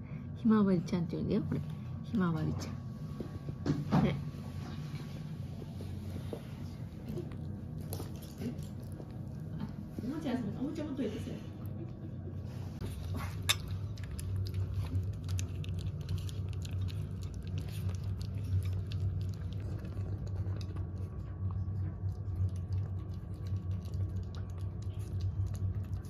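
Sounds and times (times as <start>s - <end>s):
steady low hum: 0.0s - 26.0s
puppy crunching dry kibble: 6.8s - 10.7s, 12.8s - 26.0s.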